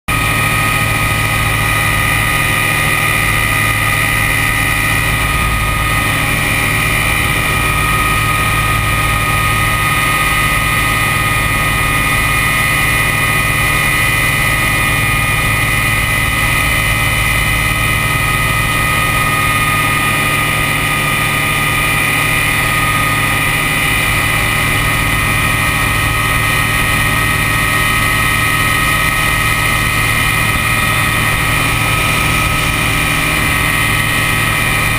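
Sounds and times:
ultralight engine and propeller drone: 0:00.1 - 0:34.9.

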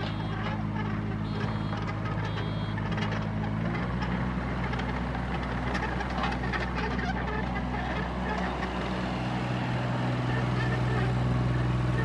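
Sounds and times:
excavator diesel engine running: 0:00.0 - 0:12.0
short high beeps: 0:01.3 - 0:02.8.

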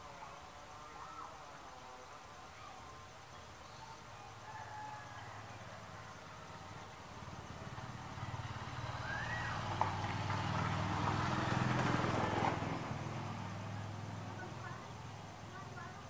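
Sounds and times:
vehicle engine passing by: 0:04.9 - 0:16.0.

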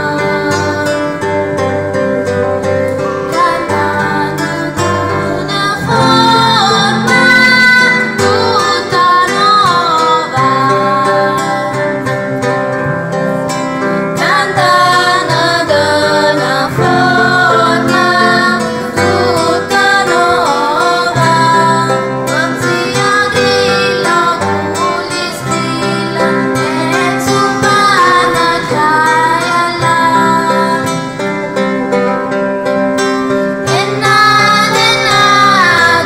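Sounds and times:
instrumental accompaniment: 0:00.0 - 0:36.0
choir singing christmas song: 0:03.3 - 0:11.8, 0:14.2 - 0:31.3, 0:33.6 - 0:36.0.

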